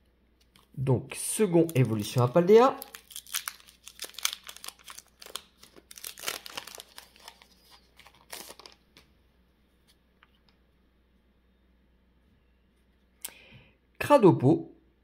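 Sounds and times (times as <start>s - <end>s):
foil wrapper tearing and crinkling: 1.6s - 8.8s.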